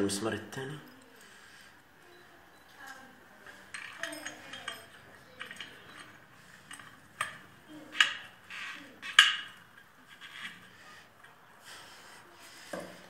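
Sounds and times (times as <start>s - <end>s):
spanner clinking on bolt: 3.7s - 6.1s.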